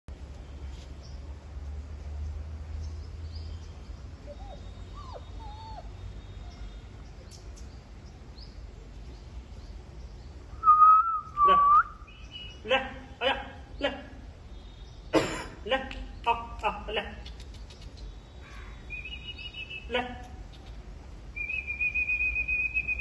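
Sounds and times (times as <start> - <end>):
puppy whining: 4.2 - 6.0
faint bird chirps: 17.2 - 20.8.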